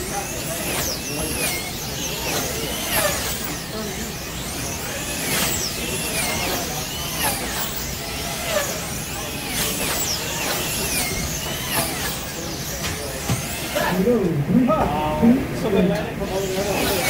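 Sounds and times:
slot car motors whining: 0:00.0 - 0:17.0
steady hum of cars and room: 0:00.0 - 0:17.0.

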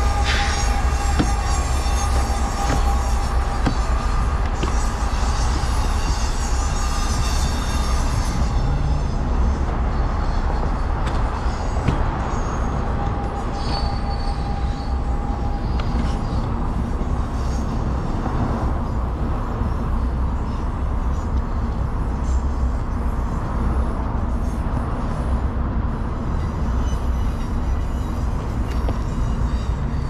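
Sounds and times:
train wheels rumbling on rail: 0:00.0 - 0:30.0
wheel squeal: 0:00.0 - 0:30.0.

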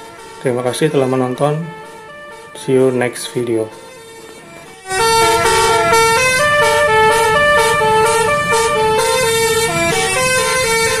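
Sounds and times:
musical bus air horn: 0:03.7 - 0:11.0.

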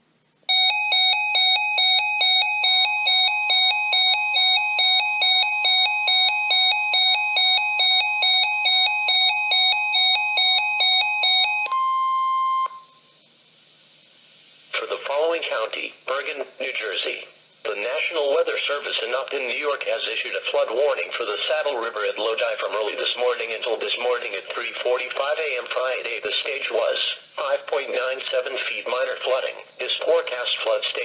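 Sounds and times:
electronic alarm beeps: 0:00.5 - 0:13.1
steady alarm tone: 0:00.5 - 0:13.2.

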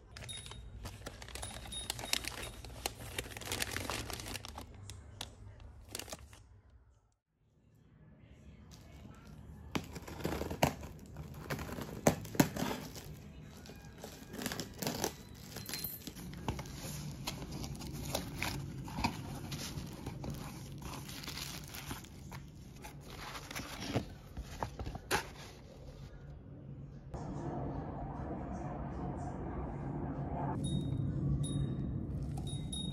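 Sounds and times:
paper and cardboard rustling: 0:00.0 - 0:04.8, 0:08.8 - 0:26.1
plastic wrap crinkling and tearing: 0:00.0 - 0:06.4, 0:09.8 - 0:25.5.

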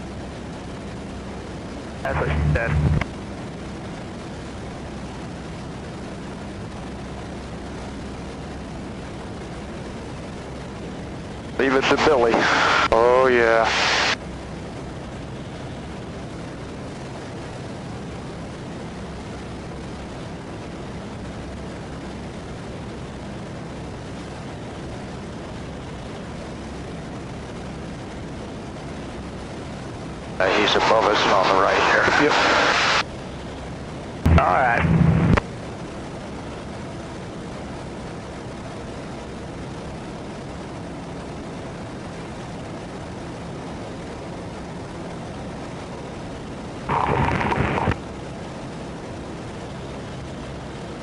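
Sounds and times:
aircraft engine and propeller drone: 0:00.0 - 0:51.0
airflow rush: 0:11.6 - 0:14.2, 0:30.4 - 0:33.0, 0:34.3 - 0:35.4.

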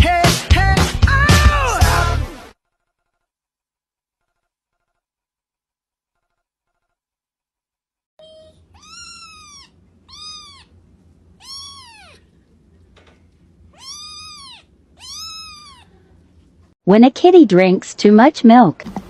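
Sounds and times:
kitten meowing: 0:08.2 - 0:10.7, 0:11.4 - 0:12.3, 0:13.7 - 0:16.0
steady low hum: 0:08.4 - 0:16.8.

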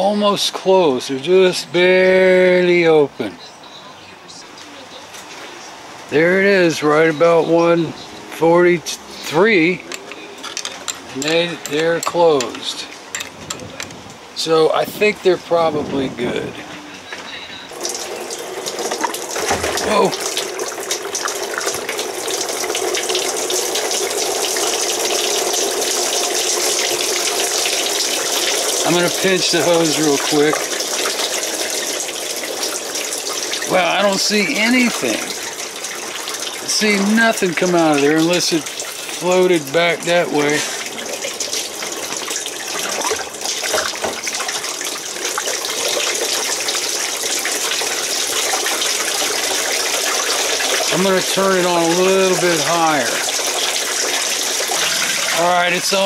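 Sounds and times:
hose water running: 0:08.4 - 0:13.8, 0:17.7 - 0:56.0
water splashing: 0:17.7 - 0:56.0.

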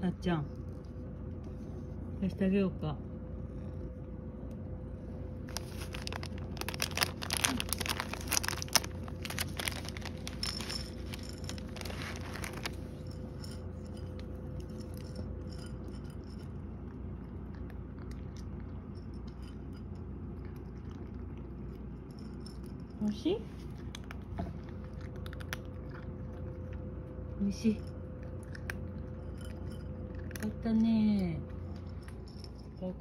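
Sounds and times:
cat crunching dry treats: 0:05.3 - 0:23.0, 0:23.6 - 0:32.8
plastic bag crinkling: 0:05.4 - 0:13.6.

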